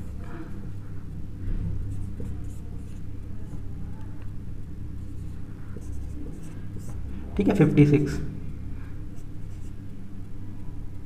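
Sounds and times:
steady low hum: 0.0 - 11.0
marker scratching on whiteboard: 2.0 - 3.8, 5.0 - 7.6.

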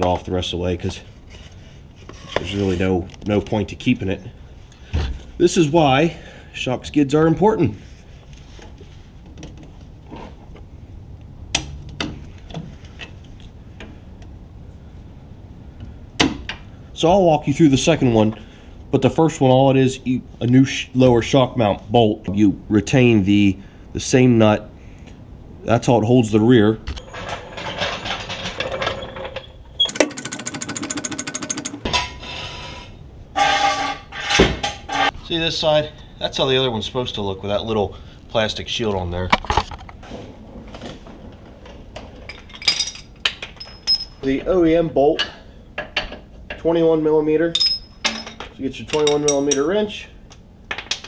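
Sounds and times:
metal clanks and scraping: 27.0 - 35.2, 39.3 - 46.7
floor jack ratchet clicking: 29.8 - 31.9.

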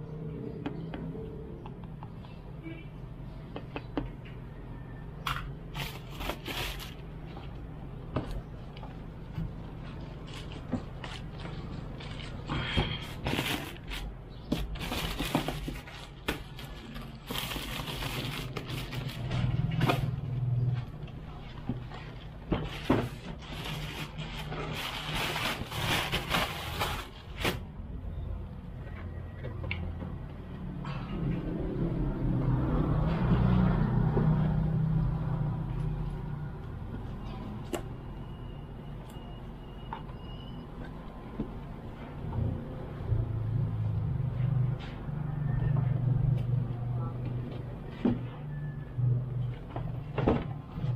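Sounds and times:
plastic bag crinkling: 5.7 - 7.2, 13.2 - 19.6, 23.1 - 27.6
tape crackling: 5.7 - 7.7, 8.7 - 27.8.

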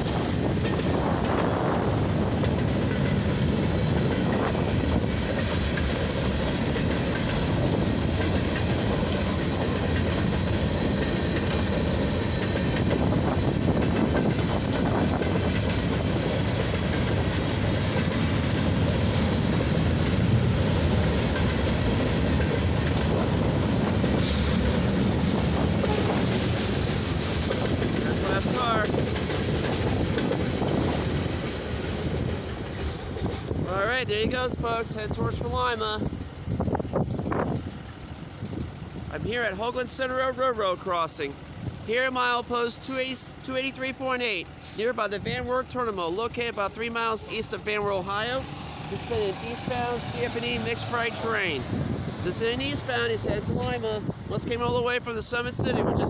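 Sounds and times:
freight train wheels on rails: 0.0 - 56.0.

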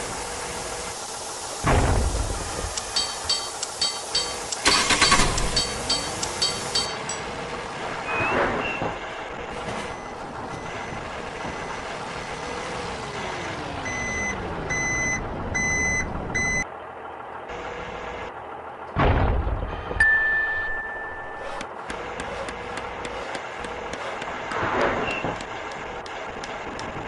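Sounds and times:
truck engine running: 0.0 - 20.0, 20.8 - 27.0
reversing alarm beeping: 9.8 - 12.7, 13.5 - 16.7.

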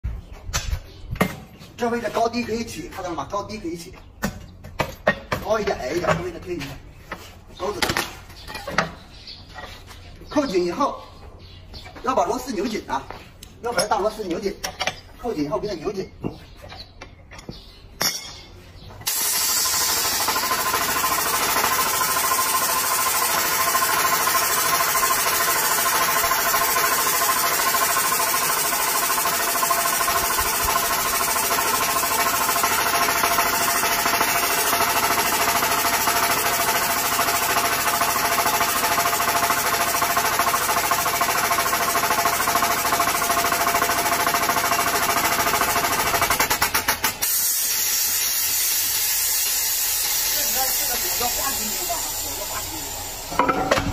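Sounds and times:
pneumatic tool hammering metal: 19.0 - 53.9
air hissing: 47.1 - 53.4.

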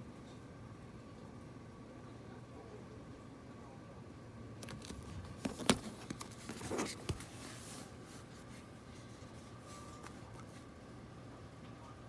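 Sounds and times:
plastic scraping and rubbing: 4.6 - 10.6.

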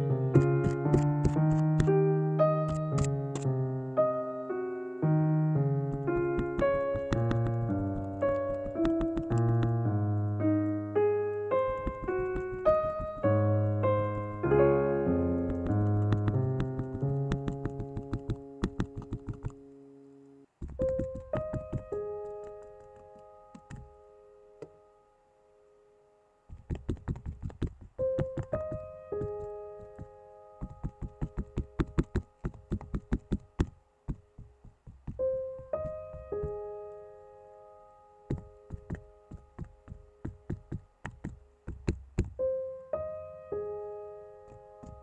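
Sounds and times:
soft piano music: 0.0 - 45.0
cotton swabs tapping on canvas: 0.4 - 1.9, 5.9 - 9.8, 11.7 - 13.4, 15.5 - 19.6, 20.6 - 22.0, 26.5 - 36.6, 38.3 - 42.4.

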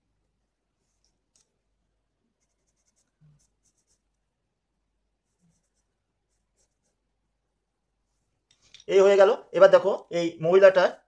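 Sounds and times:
pastel scratching on paper: 2.4 - 4.2, 5.2 - 7.1.

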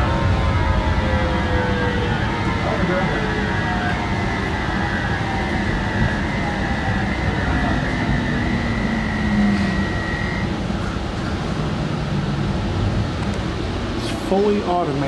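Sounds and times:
electric motor whine: 0.0 - 12.0
low tone dropping in pitch: 0.0 - 13.1
high whine: 0.0 - 15.0.

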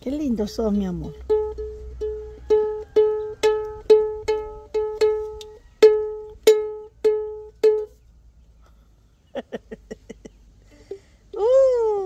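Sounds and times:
ukulele strumming: 0.4 - 8.0.

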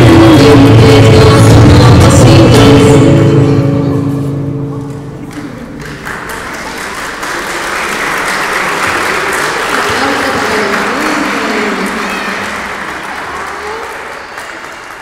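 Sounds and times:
audience applause: 5.2 - 15.0.

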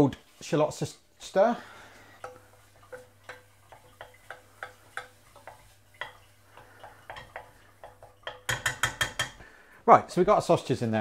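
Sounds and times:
wooden spoon tapping metal pan: 2.2 - 9.4.

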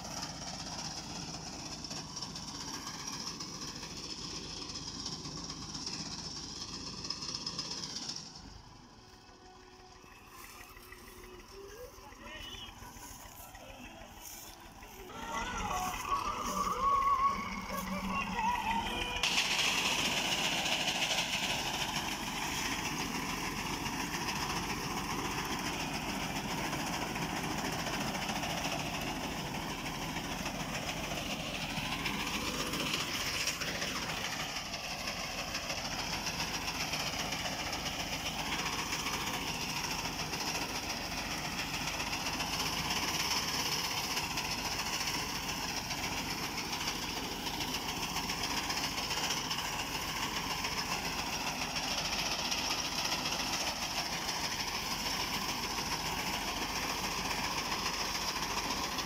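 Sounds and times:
tractor diesel engine running: 0.0 - 59.0
reaper cutting wheat: 10.2 - 29.4.

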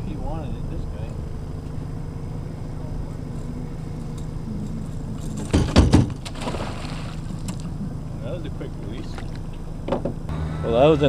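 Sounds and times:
outboard motor idling: 0.0 - 11.0
fish splashing: 5.5 - 8.0.

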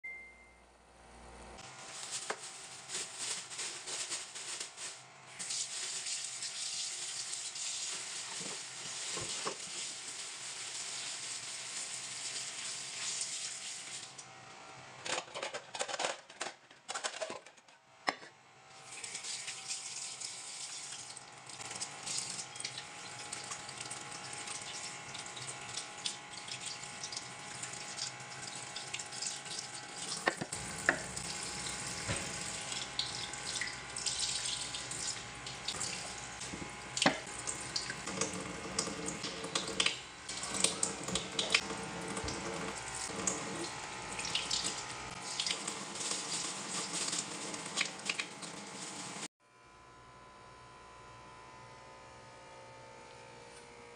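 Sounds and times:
tap running into sink: 30.0 - 33.8, 35.8 - 45.8.

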